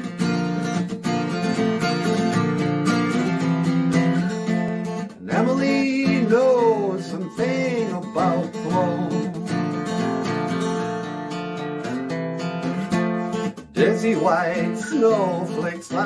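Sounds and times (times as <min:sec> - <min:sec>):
acoustic guitar strumming: 0:00.0 - 0:16.0
person singing: 0:05.2 - 0:09.6, 0:12.6 - 0:16.0.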